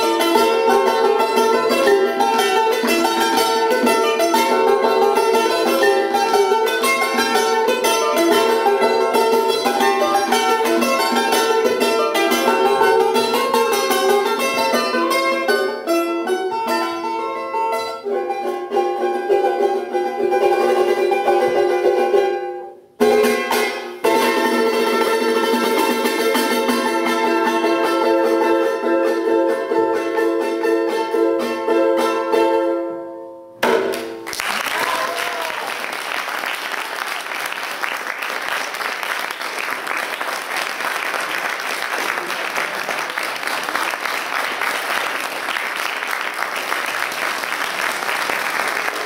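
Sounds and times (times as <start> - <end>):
charango plucked notes: 0.0 - 35.5.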